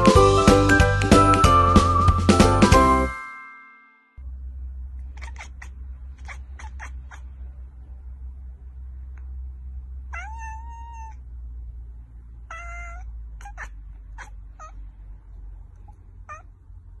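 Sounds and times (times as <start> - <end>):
steady low hum: 4.2 - 10.2
cat meowing: 5.1 - 7.4, 10.1 - 11.2, 12.4 - 14.9, 15.8 - 16.6.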